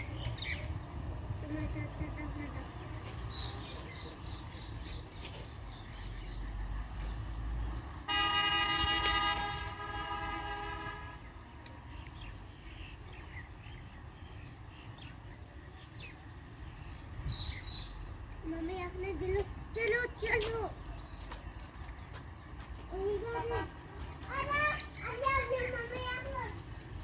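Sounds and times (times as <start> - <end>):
low traffic rumble: 0.0 - 27.0
vehicle horn blast: 8.1 - 11.3.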